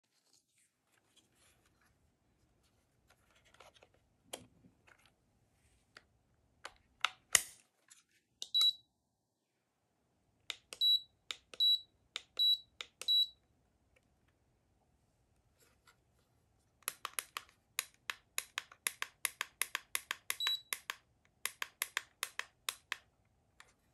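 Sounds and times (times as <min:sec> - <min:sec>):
plastic clicks from handling: 0:16.8 - 0:23.8
short high-pitched beeps: 0:20.4 - 0:20.7.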